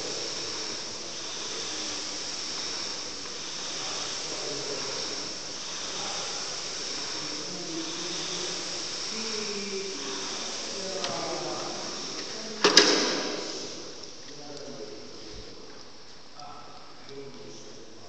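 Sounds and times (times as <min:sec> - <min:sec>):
rowing machine fan whooshing: 0:00.0 - 0:14.2.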